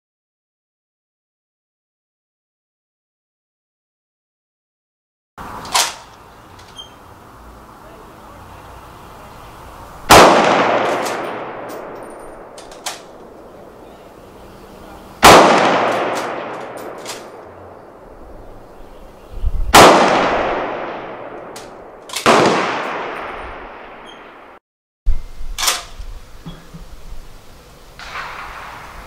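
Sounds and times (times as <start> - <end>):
rifle shots echoing: 10.0 - 14.2, 15.1 - 18.8, 19.7 - 24.6, 28.0 - 29.0.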